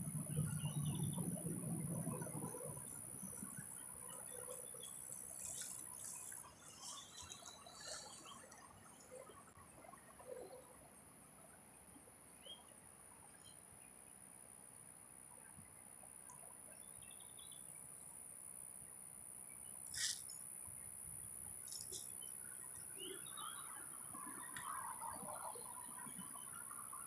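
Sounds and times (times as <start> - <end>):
insect trilling: 19.9 - 20.5.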